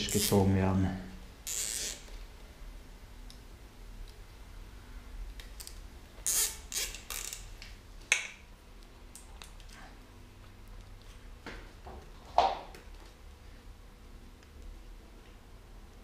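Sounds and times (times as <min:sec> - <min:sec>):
cable ties zipping: 0:01.4 - 0:02.2, 0:05.6 - 0:07.6.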